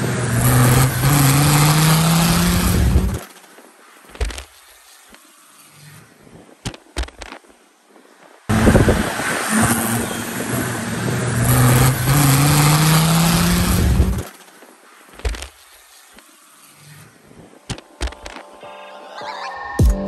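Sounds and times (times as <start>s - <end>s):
loud rough exhaust note: 0.0s - 3.2s, 8.5s - 14.2s
diesel engine accelerating hard: 0.0s - 3.3s, 8.5s - 14.5s.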